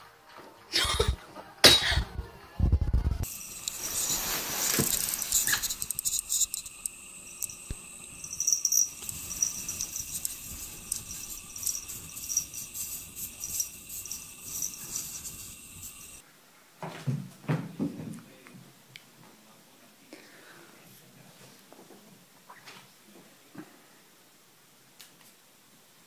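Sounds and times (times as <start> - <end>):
steady high hiss: 3.2 - 16.2.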